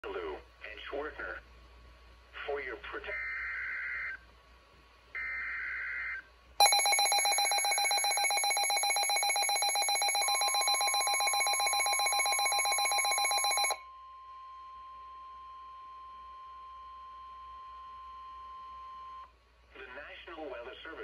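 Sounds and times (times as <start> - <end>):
rapidly pulsing alarm: 5.2 - 13.8
steady warning tone: 6.6 - 17.4.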